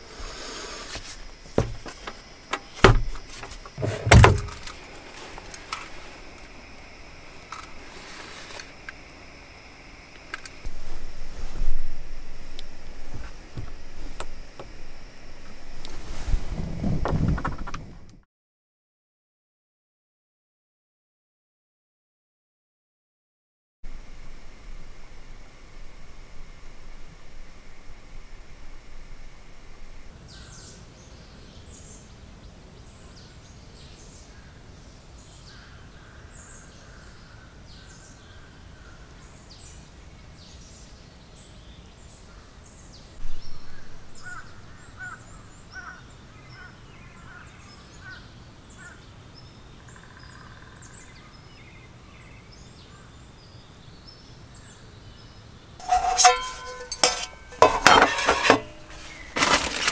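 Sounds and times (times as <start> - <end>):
faint steady hiss: 0.0 - 18.1, 23.9 - 59.9
camping gear clinking: 0.9 - 6.6, 55.8 - 59.9.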